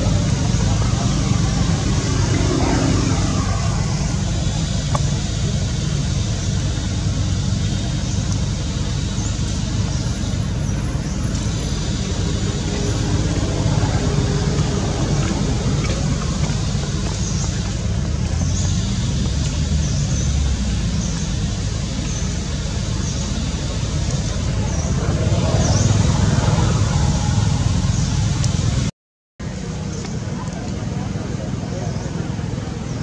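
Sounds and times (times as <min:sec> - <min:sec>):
faint rising and falling tones: 0:00.0 - 0:05.6.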